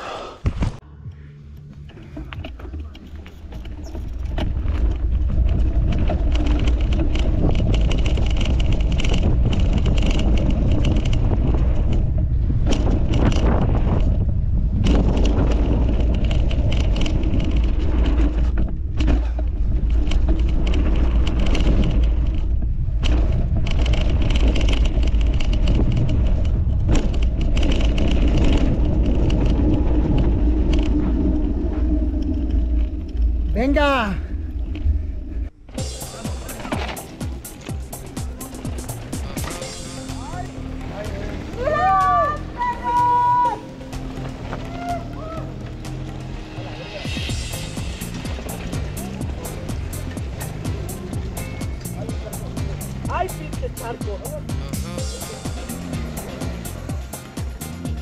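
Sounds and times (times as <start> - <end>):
bike tyres rolling on dirt: 1.8 - 58.0
wind rushing over microphone: 3.4 - 38.0.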